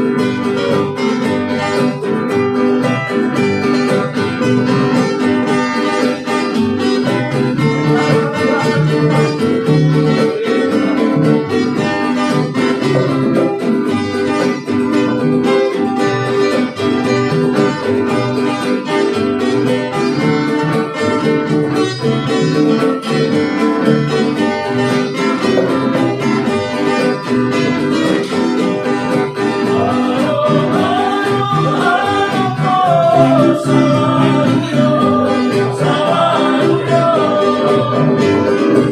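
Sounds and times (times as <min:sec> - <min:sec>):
acoustic guitars strumming: 0:00.0 - 0:38.9
hand drum: 0:00.0 - 0:38.9
ukulele strumming: 0:00.0 - 0:38.9
person singing: 0:07.3 - 0:13.6, 0:28.0 - 0:38.9.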